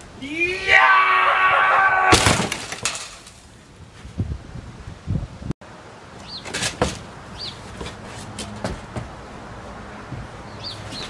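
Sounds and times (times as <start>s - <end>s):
small bird chirping: 6.2s - 6.5s, 7.4s - 7.6s, 10.5s - 11.0s.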